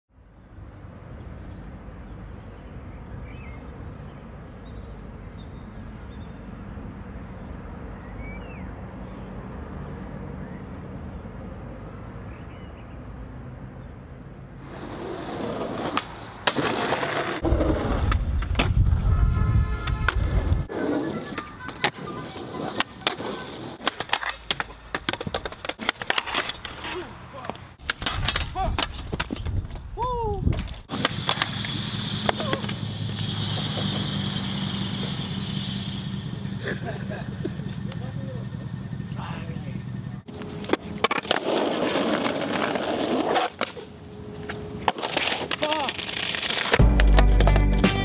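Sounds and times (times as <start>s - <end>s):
skateboard wheels rolling on concrete: 13.8s - 38.7s, 40.2s - 48.0s
skateboard clacks: 19.8s - 29.8s, 30.5s - 32.8s, 44.8s - 48.0s
faint high chirps: 31.3s - 40.3s.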